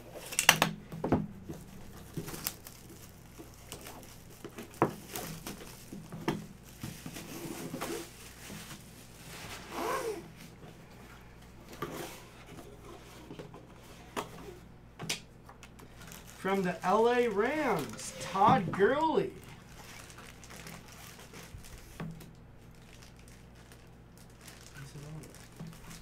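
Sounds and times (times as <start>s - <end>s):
plastic wrap tearing and crinkling: 1.5s - 10.3s, 15.6s - 26.0s.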